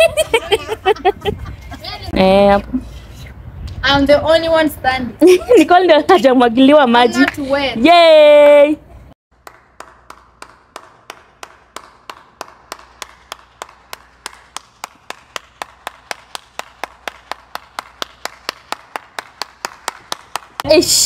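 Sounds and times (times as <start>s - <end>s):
person clapping slowly: 9.4s - 20.6s.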